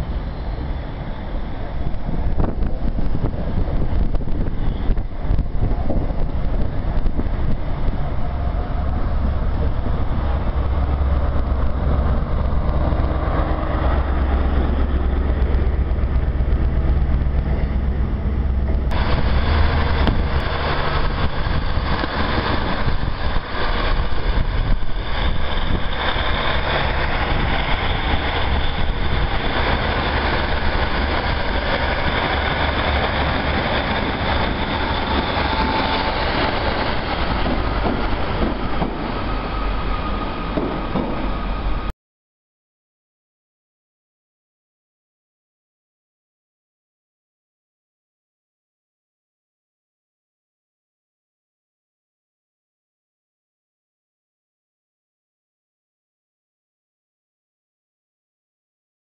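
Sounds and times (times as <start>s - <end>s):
train engine rumble: 0.0s - 41.9s
train passing on rails: 0.0s - 41.9s.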